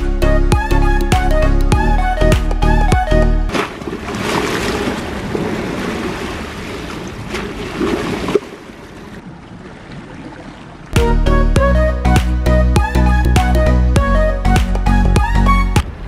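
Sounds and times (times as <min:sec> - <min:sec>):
sea water splashing against steps: 0:03.5 - 0:11.0.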